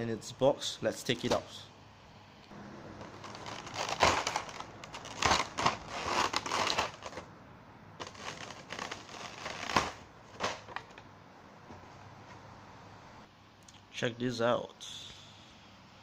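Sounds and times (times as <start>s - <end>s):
plastic packaging crinkling: 3.0s - 7.3s, 8.0s - 11.0s.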